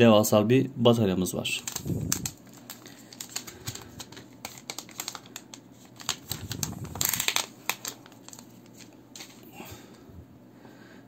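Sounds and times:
plastic film crackling: 1.6s - 9.5s.

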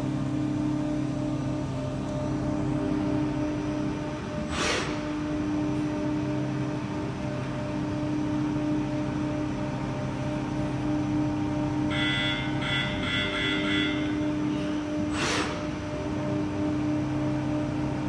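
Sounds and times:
machining centre humming: 0.0s - 18.0s.

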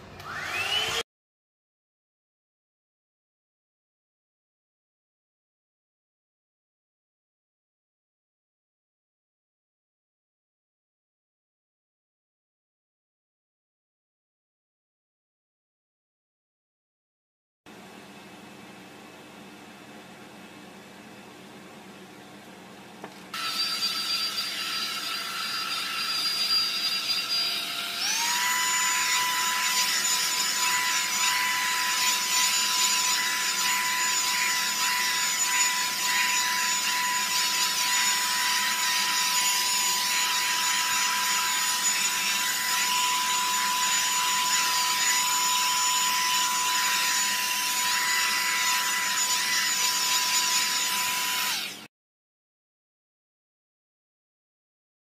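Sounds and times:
blow-dryer brush whine and air: 0.0s - 1.0s.

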